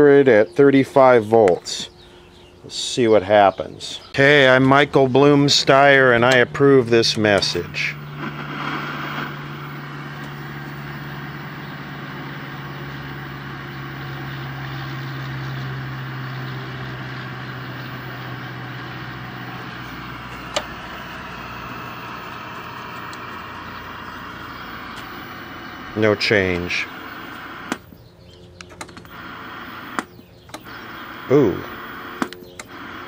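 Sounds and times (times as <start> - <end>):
tv audio low hum: 0.0 - 33.0
static: 7.2 - 27.9, 28.9 - 33.0
sharp click: 27.6 - 27.9, 29.9 - 30.8, 32.1 - 32.8.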